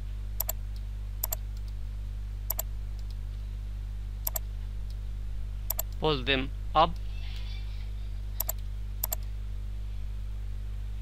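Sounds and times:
low electrical hum: 0:00.0 - 0:11.0
mouse button double clicks: 0:04.2 - 0:04.4, 0:05.7 - 0:05.9.

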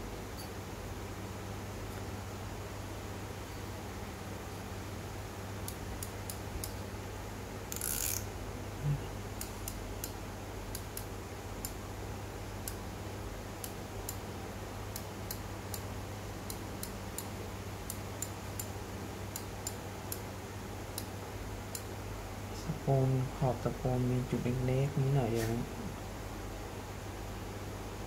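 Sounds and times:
fishing reel ticking: 0:07.7 - 0:08.2.

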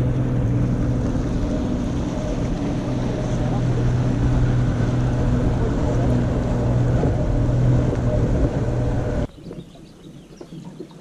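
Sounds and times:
boat motor droning: 0:00.0 - 0:09.3.

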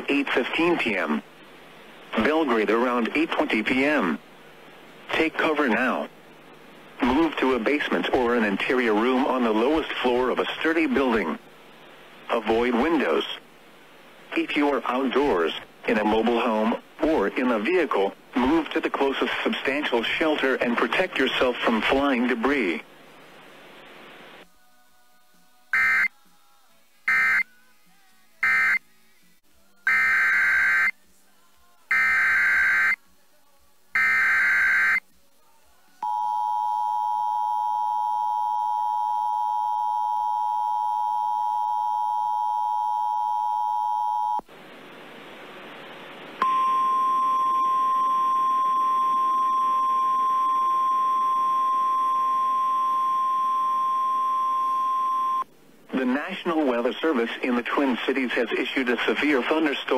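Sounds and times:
steady single-pitch alarm tone: 0:29.9 - 0:30.9, 0:31.9 - 0:33.0, 0:34.0 - 0:35.0, 0:36.0 - 0:44.4, 0:46.4 - 0:55.4
two-tone attention signal: 0:46.4 - 0:55.4.

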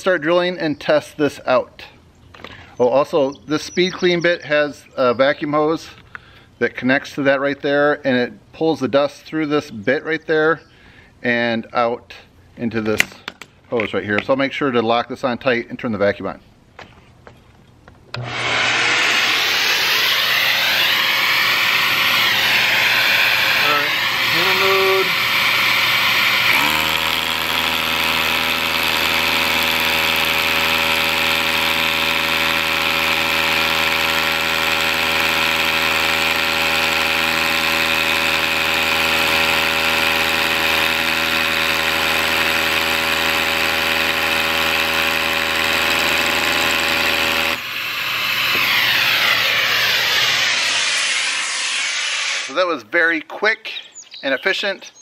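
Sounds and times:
rotary hammer drilling concrete: 0:18.1 - 0:52.7
vacuum running: 0:18.1 - 0:52.7.

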